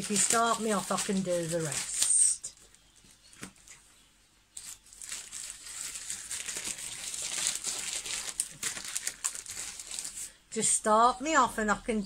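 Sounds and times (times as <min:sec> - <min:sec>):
packaging crinkling and tearing: 0:00.0 - 0:03.8, 0:04.5 - 0:10.4.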